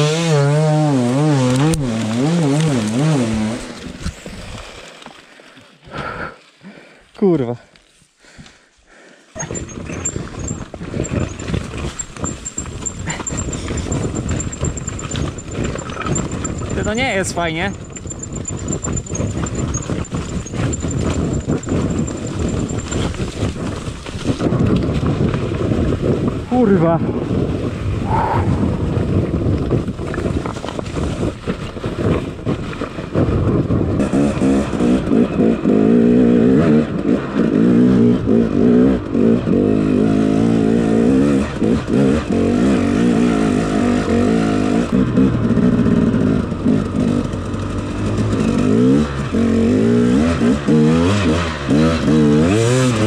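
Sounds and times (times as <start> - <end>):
motorcycle engine at low revs: 0.0 - 4.2, 9.4 - 28.1, 28.7 - 53.0
wind buffeting microphone: 9.4 - 34.4
two-stroke motorcycle engine idling: 11.1 - 23.7, 45.1 - 48.4.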